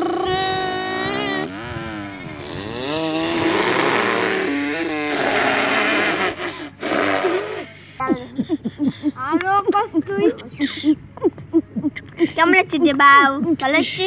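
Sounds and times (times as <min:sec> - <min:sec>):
boy imitating engine with mouth: 0:00.0 - 0:08.4.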